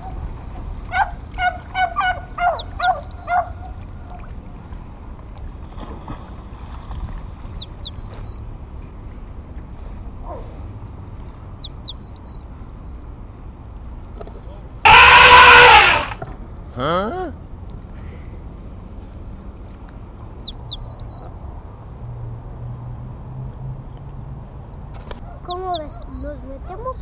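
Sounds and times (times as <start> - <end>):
songbird singing: 0.9 - 13.1, 14.2 - 16.8, 19.1 - 22.7, 23.9 - 27.0.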